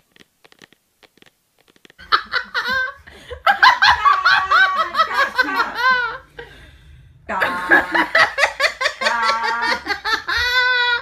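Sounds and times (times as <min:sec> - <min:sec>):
person laughing hard: 0:02.0 - 0:06.6, 0:07.3 - 0:11.0.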